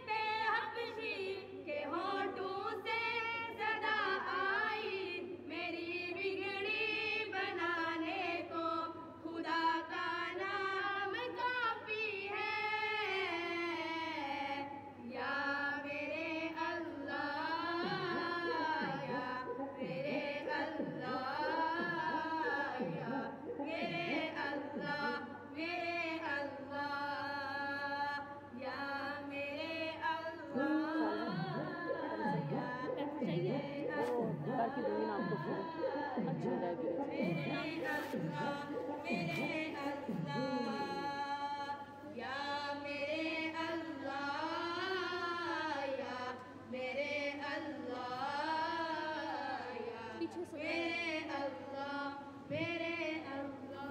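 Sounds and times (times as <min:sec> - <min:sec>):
person singing devotional song: 0:00.0 - 0:53.9
soft low beat: 0:17.6 - 0:25.3, 0:30.6 - 0:41.2.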